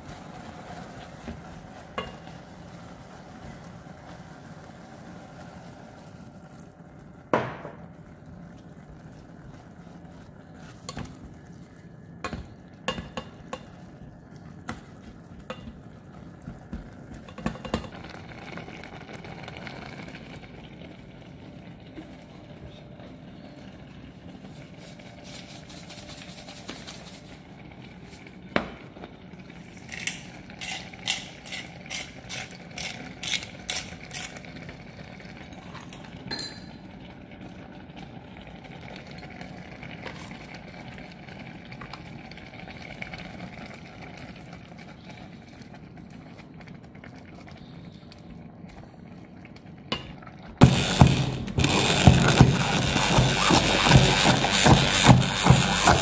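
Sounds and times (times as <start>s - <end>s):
kitchen hum: 0.0s - 56.0s
immersion blender running: 50.6s - 56.0s
short scratchy strikes: 50.6s - 56.0s.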